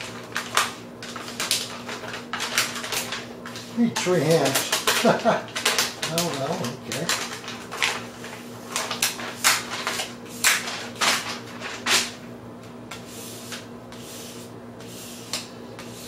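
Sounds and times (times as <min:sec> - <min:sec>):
hand rubbing a sheet: 0:12.9 - 0:16.0.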